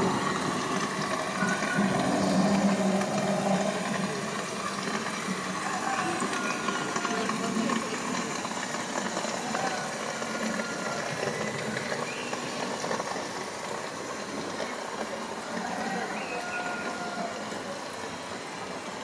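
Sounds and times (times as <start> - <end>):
murmur of many people talking: 1.4 - 12.0.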